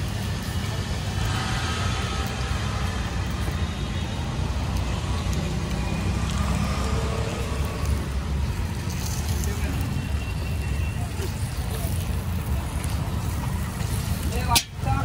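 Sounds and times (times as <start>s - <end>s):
low rumble of street noise: 0.0s - 15.0s
metal spatula clicking on griddle: 14.5s - 14.8s.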